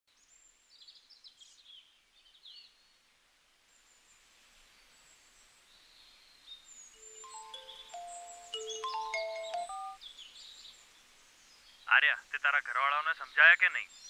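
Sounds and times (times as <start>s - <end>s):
faint small bird chirps: 0.1s - 3.1s
outdoor ambience hiss: 0.1s - 14.0s.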